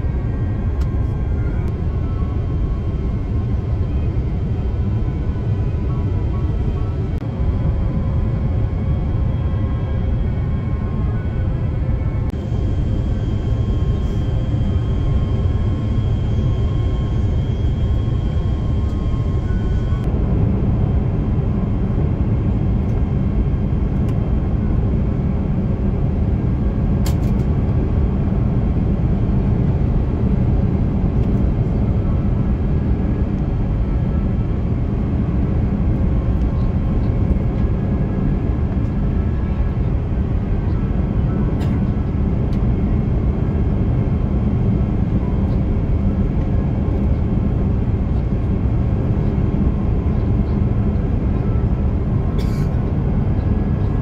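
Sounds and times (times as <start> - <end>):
faint whining tones: 0.0 - 20.2
jet engine rumble in cabin: 0.0 - 54.0.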